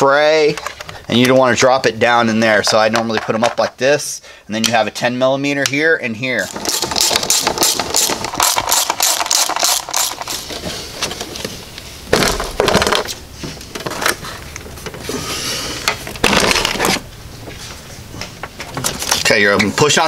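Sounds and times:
plastic cover scraping: 0:06.4 - 0:17.1
ratchet wrench clicking: 0:06.5 - 0:10.2.

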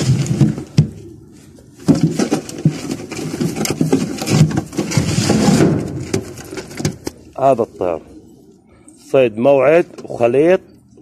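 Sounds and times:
rustling and knocking at microphone: 0:01.8 - 0:07.2.

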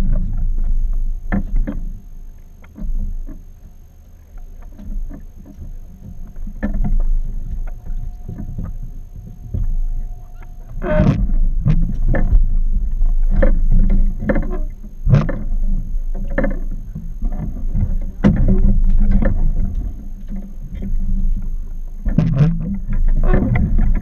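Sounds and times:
low rumble: 0:00.0 - 0:24.0
water slapping against hull: 0:10.7 - 0:24.0.

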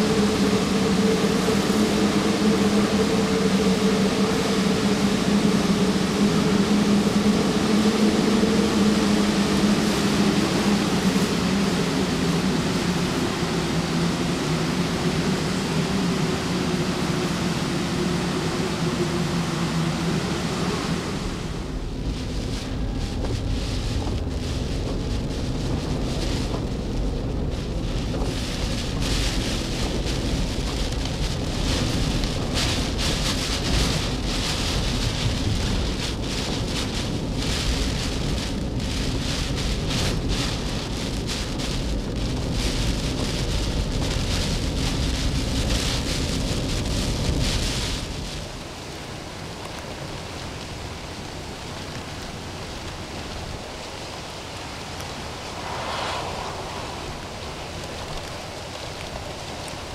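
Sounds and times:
road rumble: 0:00.0 - 0:59.9
storm wind and rain: 0:00.0 - 0:59.9
rain hitting a car: 0:21.0 - 0:55.4, 0:57.7 - 0:59.9.

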